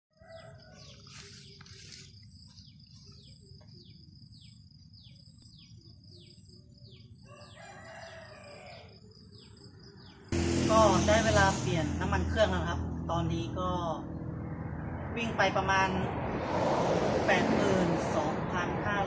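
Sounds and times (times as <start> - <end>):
faint rooster crowing: 0.1 - 1.7, 7.2 - 9.2.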